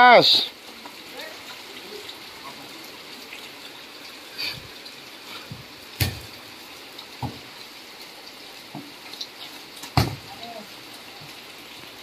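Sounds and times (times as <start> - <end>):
heavy rain on concrete: 0.0 - 12.0
volleyball being hit: 6.0 - 6.3, 10.0 - 10.3.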